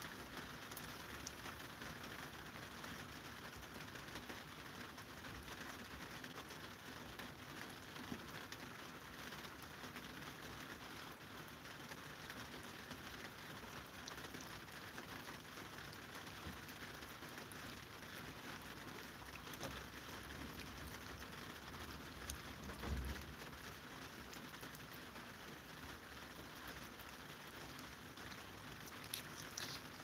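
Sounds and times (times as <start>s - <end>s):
cats licking treat paste: 27.0s - 30.0s.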